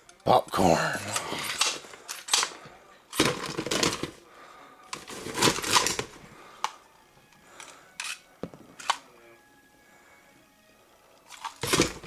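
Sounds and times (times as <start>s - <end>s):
toy rummaging through popcorn: 1.0s - 4.2s, 4.9s - 6.8s, 11.3s - 12.0s.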